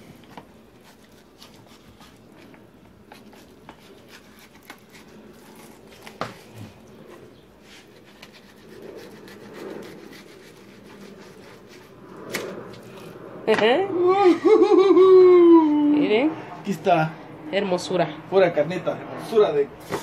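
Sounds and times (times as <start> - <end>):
knife cutting fish on board: 0.4 - 2.3, 3.0 - 6.6.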